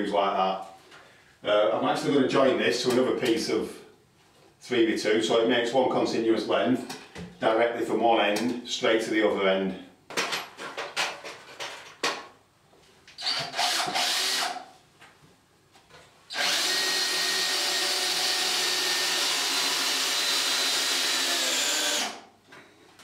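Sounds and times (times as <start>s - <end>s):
cordless drill driving a screw: 13.2s - 14.6s, 16.3s - 22.2s.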